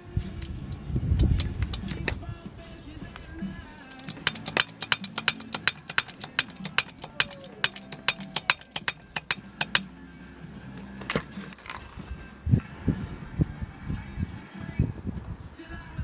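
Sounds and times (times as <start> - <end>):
hydraulic jack metallic clicks: 0.4 - 2.2, 3.8 - 9.9.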